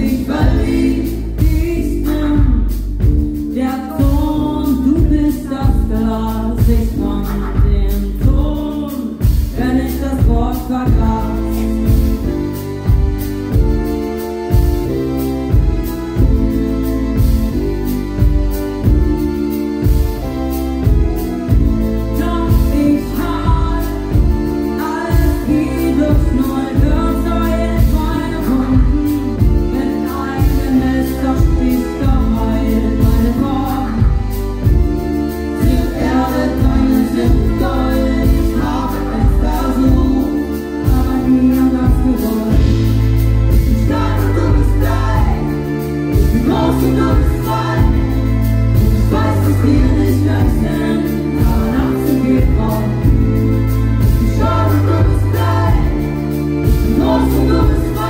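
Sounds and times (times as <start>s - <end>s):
live pop band playing: 0.0s - 58.0s
person singing: 21.5s - 58.0s.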